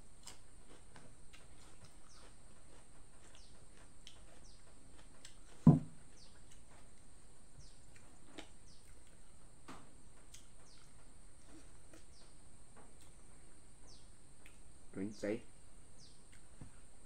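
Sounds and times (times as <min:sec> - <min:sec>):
dull thump: 0:05.6 - 0:06.0.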